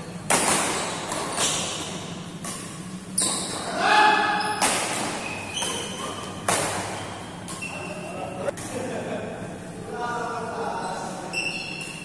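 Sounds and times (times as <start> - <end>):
rackets hitting shuttlecock: 0.2 - 3.8, 4.4 - 8.8.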